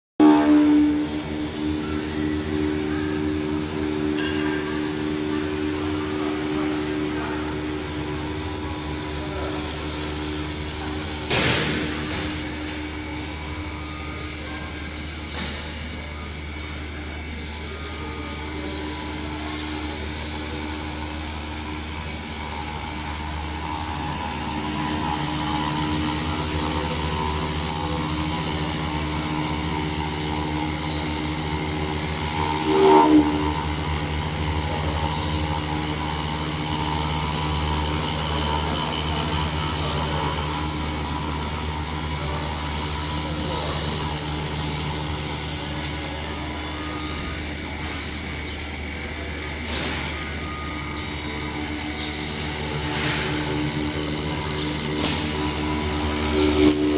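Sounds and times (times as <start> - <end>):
router spindle hum and whine: 0.2 - 56.9.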